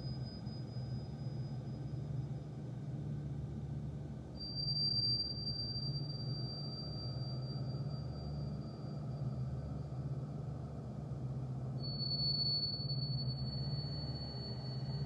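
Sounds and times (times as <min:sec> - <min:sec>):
thin high-pitched whine: 0:00.0 - 0:15.0.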